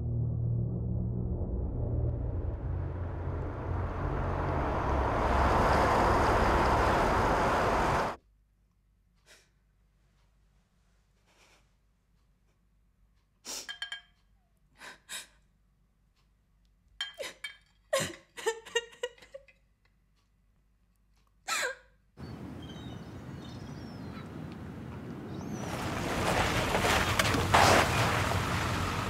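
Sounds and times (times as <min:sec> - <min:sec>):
car engine approaching: 0:00.0 - 0:08.2, 0:22.2 - 0:29.0
outdoor noise: 0:00.0 - 0:09.6, 0:12.1 - 0:29.0.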